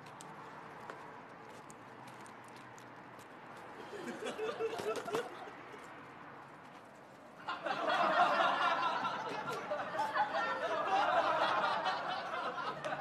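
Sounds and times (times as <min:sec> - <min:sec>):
crowd laughing: 0:03.8 - 0:05.9, 0:07.4 - 0:13.0.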